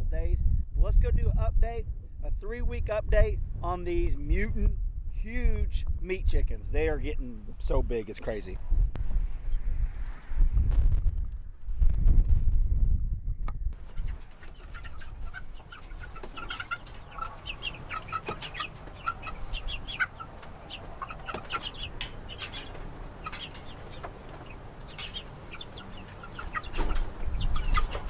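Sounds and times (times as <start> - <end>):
chicks peeping: 13.8 - 28.0.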